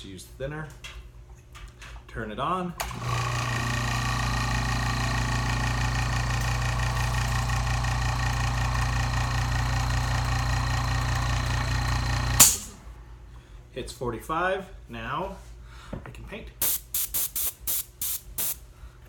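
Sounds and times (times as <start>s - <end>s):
air compressor humming: 2.8s - 13.5s, 16.6s - 18.7s.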